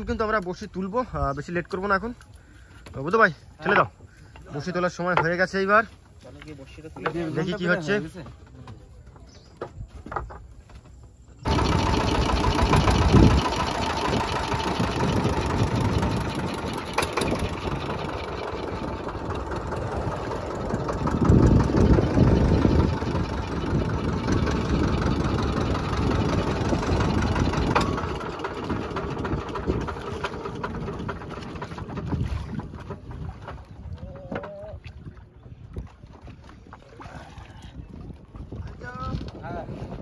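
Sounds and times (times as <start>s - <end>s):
boat engine running: 11.1s - 40.0s
wind buffeting microphone: 11.4s - 40.0s.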